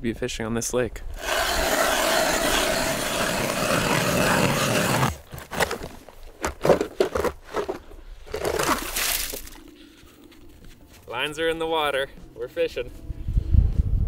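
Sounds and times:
ice auger scraping through ice: 1.2s - 9.3s
auger crunching strokes: 1.2s - 9.7s.

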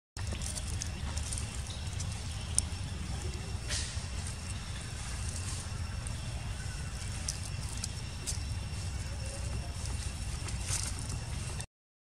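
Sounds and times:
low outdoor rumble: 0.2s - 11.7s
rustling dry leaf litter: 0.2s - 11.7s.

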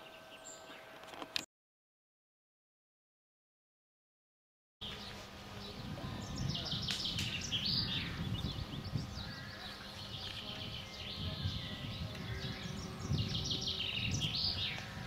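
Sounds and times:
songbirds chirping: 0.0s - 1.5s, 4.8s - 15.0s
wind rumble on microphone: 4.8s - 15.0s.

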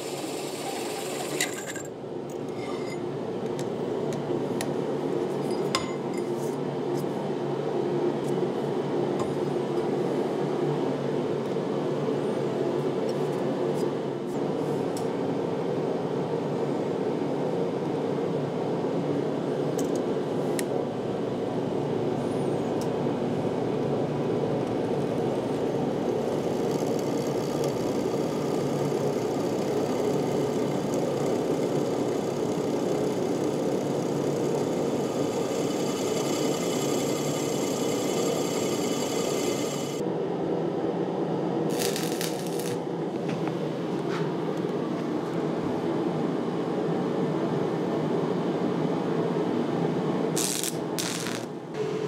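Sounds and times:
drill press motor running: 0.0s - 1.9s, 26.0s - 40.0s.

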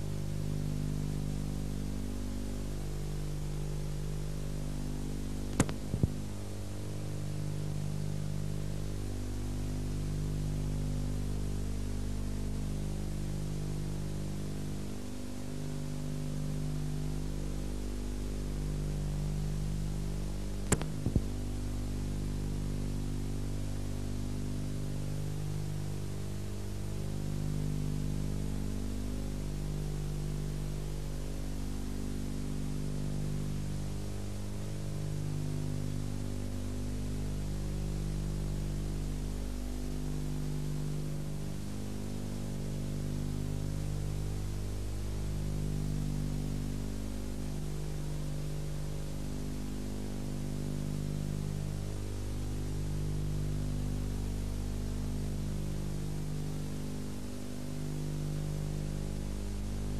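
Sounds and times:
electrical mains hum: 0.0s - 59.9s
tape hiss: 0.0s - 59.9s
sharp crackle: 5.5s - 6.2s, 20.6s - 21.3s.

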